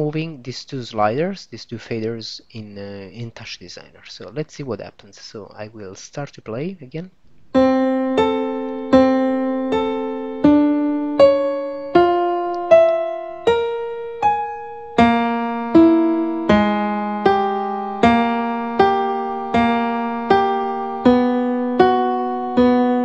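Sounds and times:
piano notes ringing: 7.4s - 23.0s.

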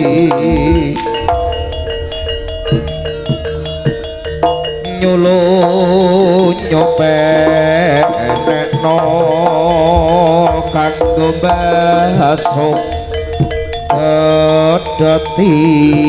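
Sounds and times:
gamelan percussion: 0.0s - 16.0s
hand drums: 0.0s - 16.0s
sliding melody line: 0.0s - 16.0s.

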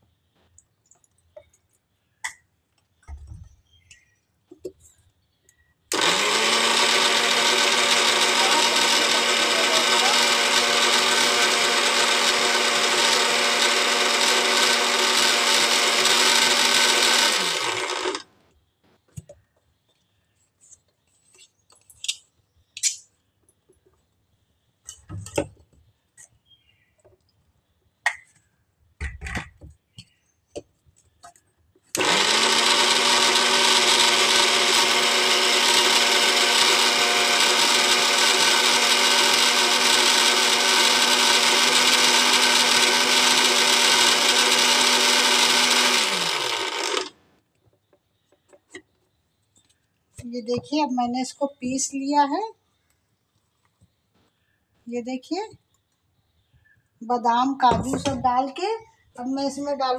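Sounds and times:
mixer grinder whining: 5.9s - 18.4s, 31.9s - 47.2s.

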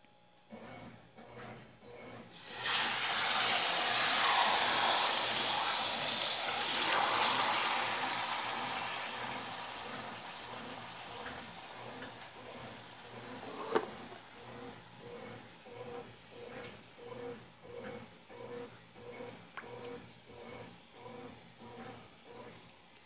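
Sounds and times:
meat sizzling in hot lard: 2.3s - 11.8s.

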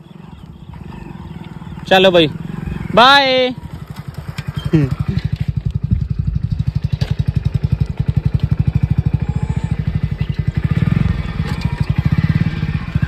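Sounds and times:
motorcycle engine thumping: 3.6s - 13.0s.

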